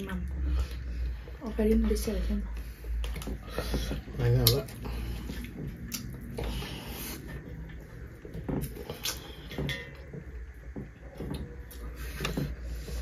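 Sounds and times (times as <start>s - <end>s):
low steady hum: 0.0s - 13.0s
chewing: 2.5s - 13.0s.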